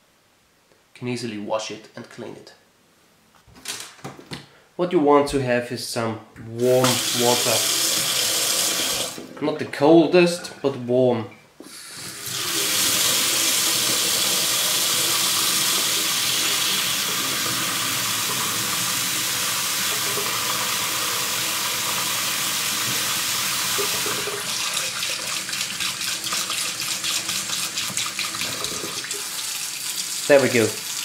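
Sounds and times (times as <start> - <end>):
water running into metal sink: 6.6 - 9.2, 12.0 - 31.0.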